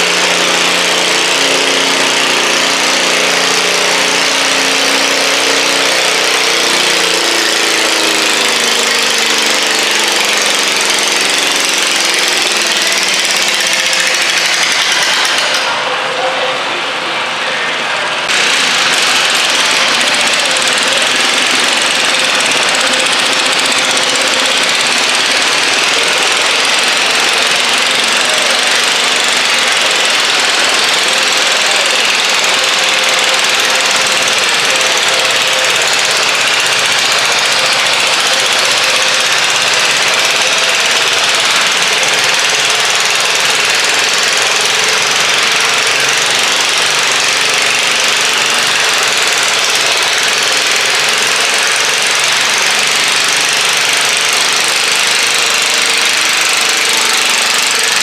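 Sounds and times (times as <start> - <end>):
tractor engine rattling drone: 0.0 - 58.0.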